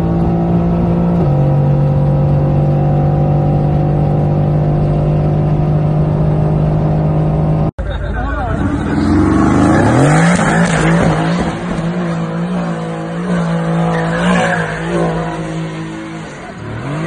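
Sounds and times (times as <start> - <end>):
car engine revving: 8.3 - 17.0
tyres squealing and skidding: 8.4 - 17.0.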